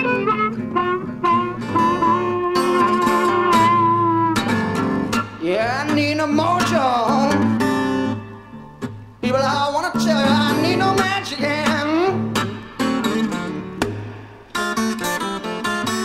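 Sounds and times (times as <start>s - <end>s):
blues-rock band playing: 0.0s - 5.4s
lead guitar bending notes: 0.0s - 16.0s.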